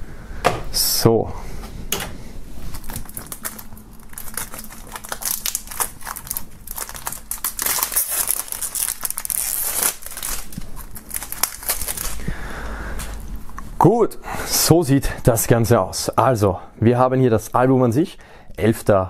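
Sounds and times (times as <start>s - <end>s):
plastic wrap crinkling: 2.6s - 13.8s.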